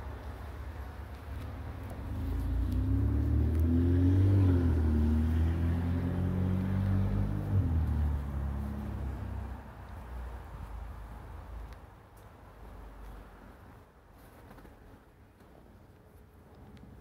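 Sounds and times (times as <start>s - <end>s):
vehicle driving past: 1.8s - 9.9s.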